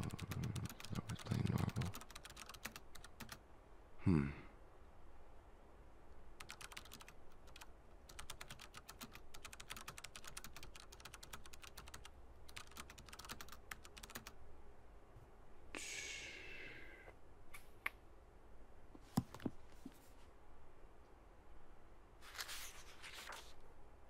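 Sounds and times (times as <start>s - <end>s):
typing on computer keyboard: 0.0s - 3.4s, 6.4s - 14.4s.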